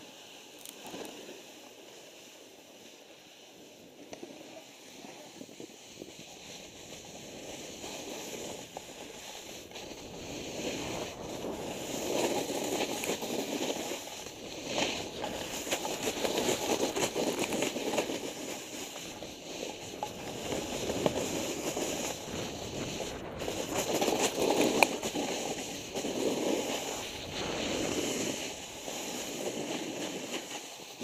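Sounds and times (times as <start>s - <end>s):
snowboard scraping over snow: 0.0s - 31.0s.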